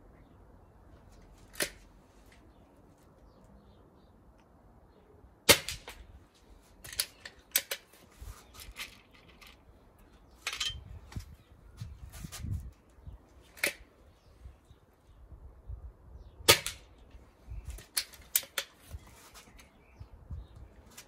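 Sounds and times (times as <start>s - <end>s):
airgun cracks: 1.5s - 1.8s.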